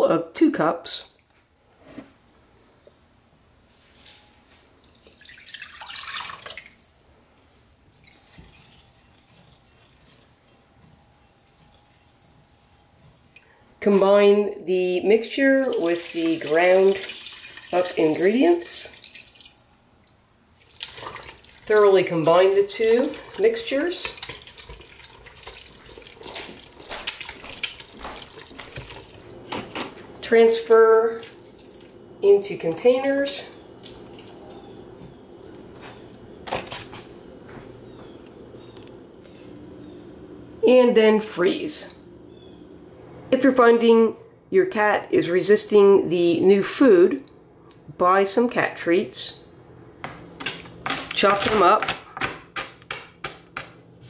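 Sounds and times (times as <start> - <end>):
liquid pouring into glass bowl: 4.9 - 7.0, 15.6 - 19.6, 24.1 - 29.3, 31.2 - 32.1, 33.8 - 34.8
wet squelching and sloshing: 4.9 - 10.4, 15.6 - 29.5, 31.2 - 32.1, 33.8 - 34.8
spatula stirring liquid: 8.0 - 10.7, 20.5 - 29.3.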